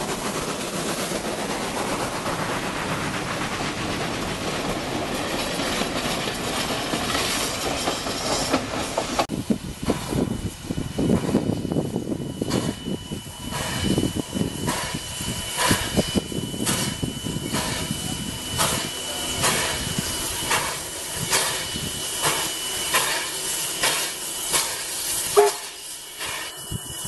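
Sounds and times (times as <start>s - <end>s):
steam hissing: 0.0s - 27.0s
steam locomotive exhaust chuffs: 0.0s - 27.0s.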